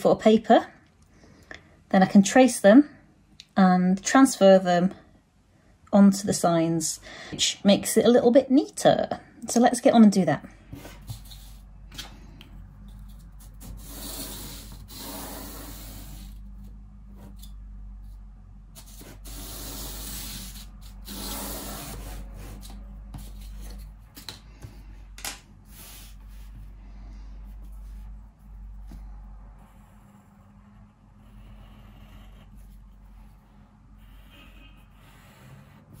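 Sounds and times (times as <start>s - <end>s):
pencil scratching on paper: 12.9s - 18.2s, 18.8s - 24.0s, 25.7s - 26.7s, 27.5s - 29.0s, 29.6s - 36.0s.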